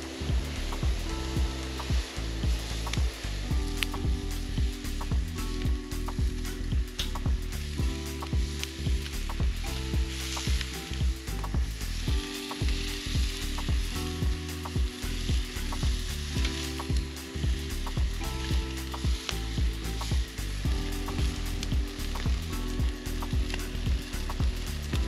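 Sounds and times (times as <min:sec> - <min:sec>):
chicken sizzling on grill: 0:00.0 - 0:25.0.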